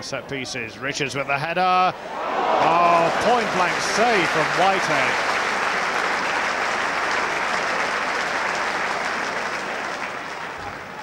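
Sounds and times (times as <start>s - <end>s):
crowd cheering: 1.9s - 11.0s
crowd clapping: 2.5s - 11.0s.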